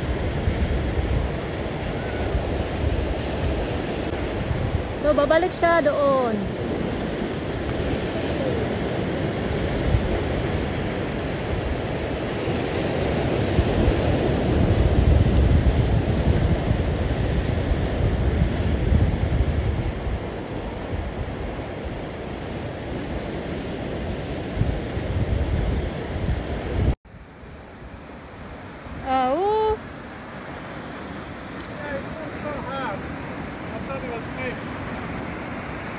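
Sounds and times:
surf breaking over rocks: 0.0s - 24.8s, 28.2s - 35.9s
wind buffeting microphone: 0.0s - 27.0s.

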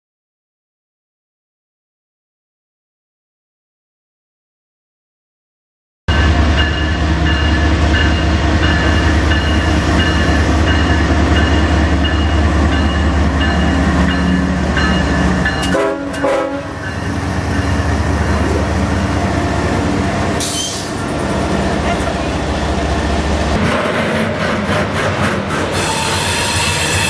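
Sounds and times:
diesel locomotive engine drone: 6.1s - 27.0s.

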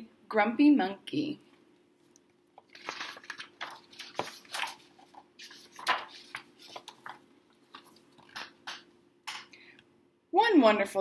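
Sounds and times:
book pages rustling: 2.5s - 9.4s.

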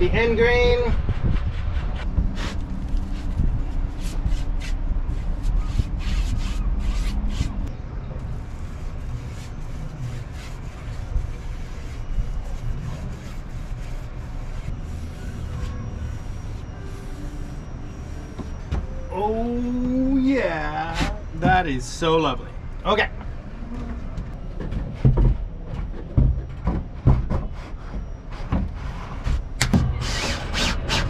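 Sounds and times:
paintbrush strokes on wood: 8.3s - 18.6s.

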